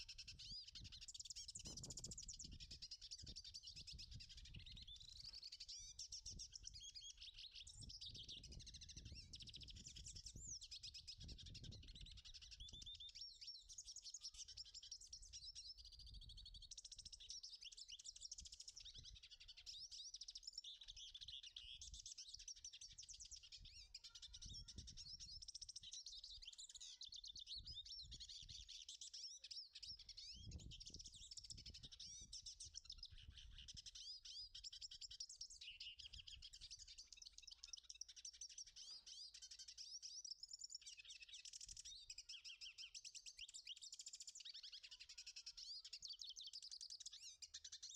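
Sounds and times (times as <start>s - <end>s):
bird singing twittering song: 0.0s - 47.9s.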